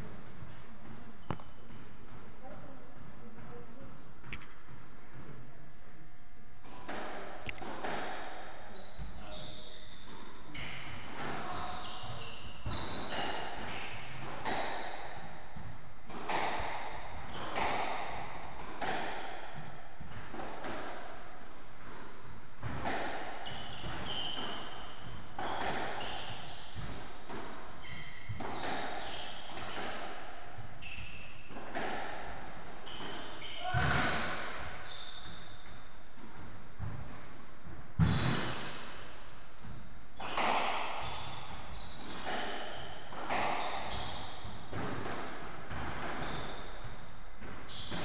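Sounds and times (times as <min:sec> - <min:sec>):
squash ball smacking rackets and walls: 0:00.0 - 0:48.0
shoes squeaking on wooden floor: 0:08.7 - 0:10.8, 0:11.4 - 0:13.2, 0:23.4 - 0:27.0, 0:27.8 - 0:29.5, 0:32.8 - 0:34.0, 0:34.7 - 0:35.8, 0:39.1 - 0:44.7, 0:46.2 - 0:48.0.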